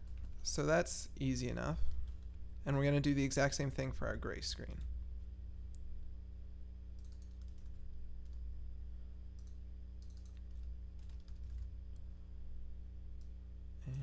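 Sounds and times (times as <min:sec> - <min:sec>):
steady low hum: 0:00.0 - 0:14.0
typing on computer keyboard: 0:07.0 - 0:08.4, 0:09.4 - 0:11.7.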